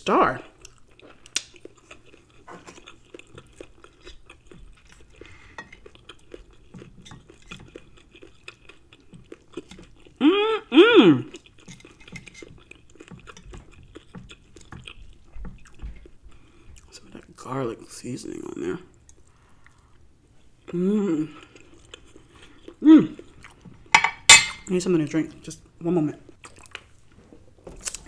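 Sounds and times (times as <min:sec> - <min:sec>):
chewing: 0:00.5 - 0:17.2, 0:18.9 - 0:20.0, 0:20.6 - 0:24.0, 0:26.2 - 0:28.0
knife and fork on plate: 0:24.0 - 0:24.7.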